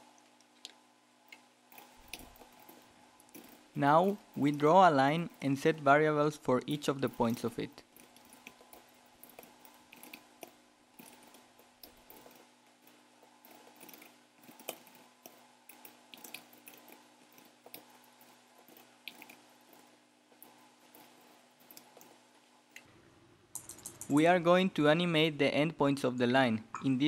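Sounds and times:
faint steady hum: 0:00.0 - 0:27.0
keyboard typing: 0:07.0 - 0:22.2, 0:23.6 - 0:24.2.

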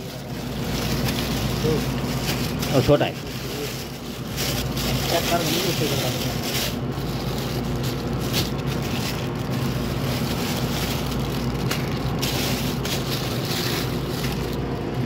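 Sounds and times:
plastic packets crinkling: 0:00.0 - 0:15.0
steady low hum: 0:00.0 - 0:15.0.

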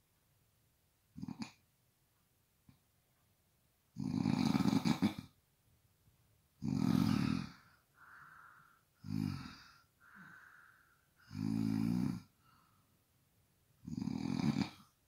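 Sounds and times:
loud snoring: 0:01.2 - 0:01.6, 0:04.0 - 0:05.3, 0:06.6 - 0:08.3, 0:09.0 - 0:10.5, 0:11.2 - 0:12.4, 0:13.8 - 0:15.0
soft breaths: 0:06.7 - 0:13.4.

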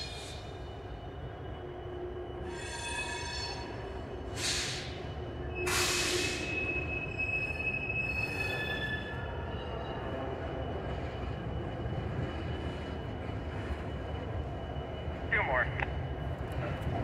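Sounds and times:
diesel locomotives rumbling: 0:00.0 - 0:17.0
wheel flanges squealing: 0:05.4 - 0:09.8.

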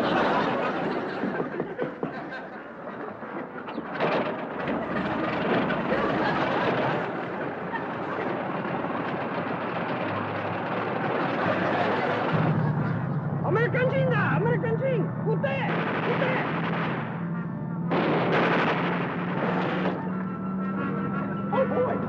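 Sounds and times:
propeller plane engine running: 0:00.0 - 0:22.0.

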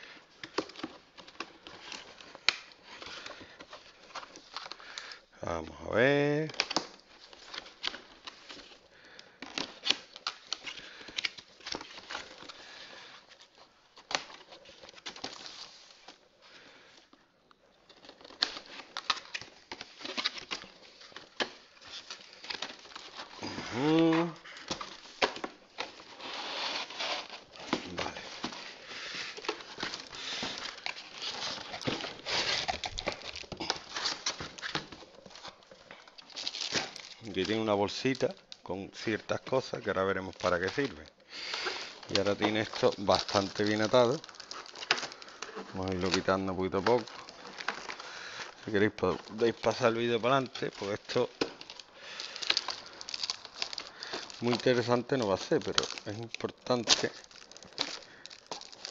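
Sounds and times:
rustling: 0:06.5 - 0:58.9
cardboard flaps rustling: 0:17.8 - 0:37.6.

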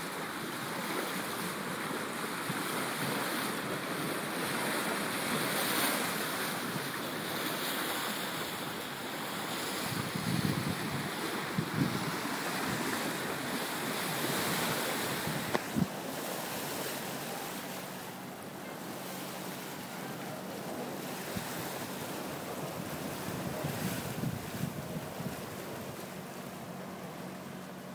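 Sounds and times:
water rushing along hull: 0:00.0 - 0:27.9
wind buffeting microphone: 0:09.8 - 0:16.0, 0:21.2 - 0:26.1.

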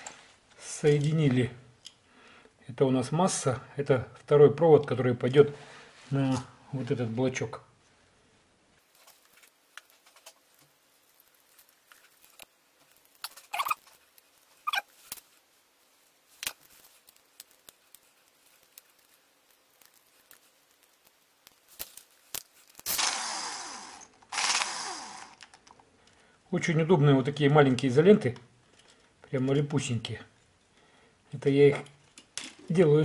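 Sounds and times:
copper wires clicking and rustling: 0:08.8 - 0:23.2
short squeaks: 0:13.3 - 0:14.0, 0:14.6 - 0:14.9
cordless drill running: 0:22.9 - 0:25.5.

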